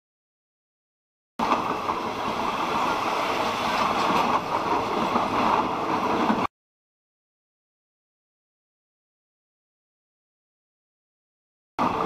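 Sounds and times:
train wheels on rails: 0:01.4 - 0:06.5, 0:11.8 - 0:12.0.

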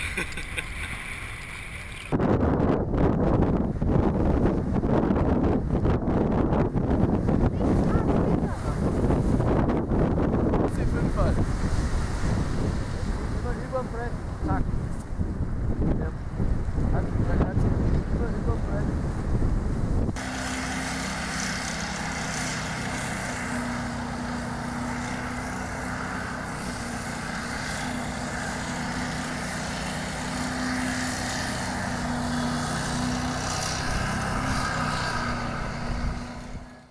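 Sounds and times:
lawnmower engine running: 0:00.0 - 0:02.2, 0:20.2 - 0:36.9
surf: 0:00.0 - 0:02.2, 0:06.1 - 0:36.7
wind buffeting microphone: 0:00.0 - 0:36.9.

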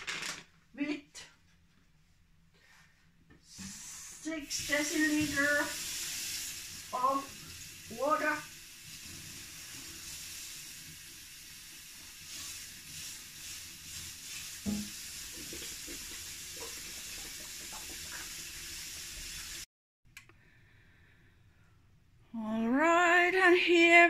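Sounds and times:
tap water running into jug: 0:08.5 - 0:19.6
water poured into metal pot: 0:08.6 - 0:19.6.

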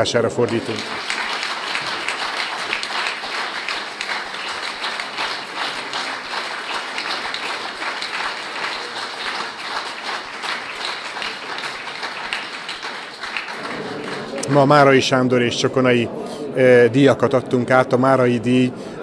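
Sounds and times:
audience applauding: 0:00.4 - 0:15.0.

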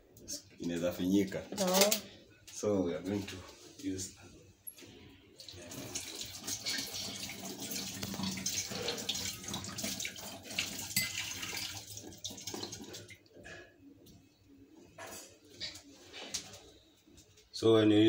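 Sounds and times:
water splashing into a sink: 0:05.4 - 0:13.3.

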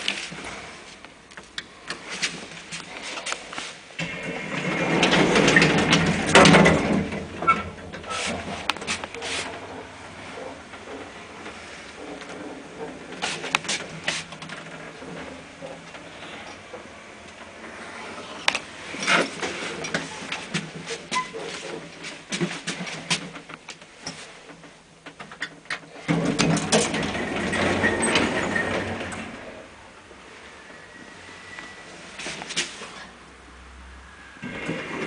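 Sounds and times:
lift rumble: 0:00.0 - 0:24.9, 0:25.9 - 0:35.0
lift mechanical clicks and clunks: 0:18.4 - 0:29.6.

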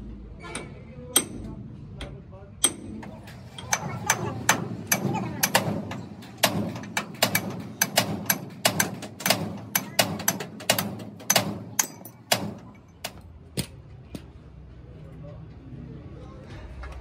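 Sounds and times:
hammer striking metal: 0:00.5 - 0:13.2.

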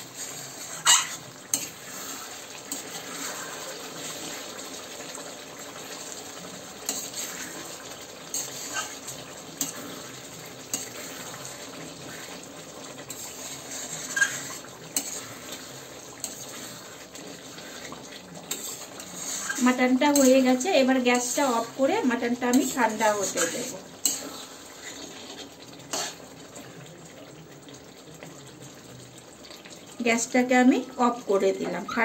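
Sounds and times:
spatula scraping a metal pan: 0:00.0 - 0:04.5, 0:06.8 - 0:12.4, 0:13.0 - 0:26.2.

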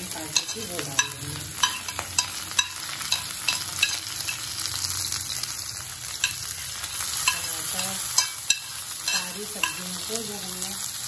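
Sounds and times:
vegetables sizzling in hot oil: 0:00.0 - 0:11.0
metal spoon scraping plate: 0:07.2 - 0:09.8.

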